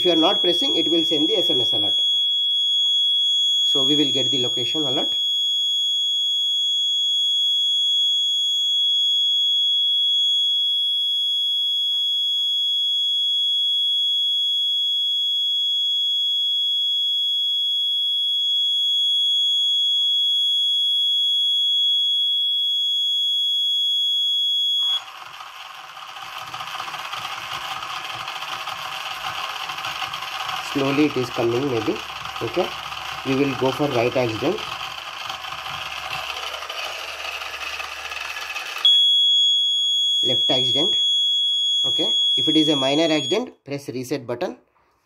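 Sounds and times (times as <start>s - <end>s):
high-pitched buzzer alarm tone: 0.0s - 25.2s, 25.8s - 43.5s
small motors whirring: 24.9s - 38.9s.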